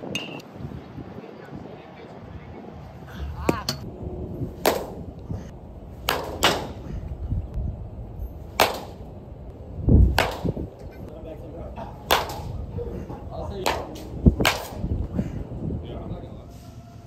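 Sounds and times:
baseball bat cracking balls: 4.5s - 5.2s, 6.0s - 7.0s, 8.5s - 9.2s, 10.0s - 11.1s, 11.9s - 12.7s, 13.6s - 14.9s.

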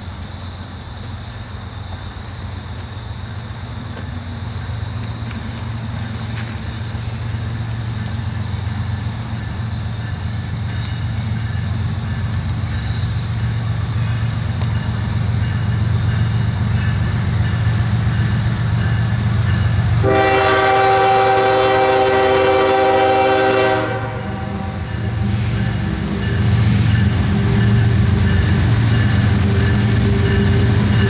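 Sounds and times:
diesel locomotives rumbling: 0.0s - 31.0s
locomotive horn blast: 20.0s - 25.4s.

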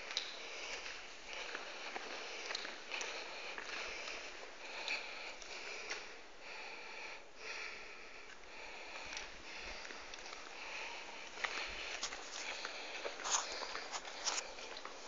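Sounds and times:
person breathing through nose: 0.3s - 14.8s
footsteps on gritty concrete: 11.4s - 15.0s.

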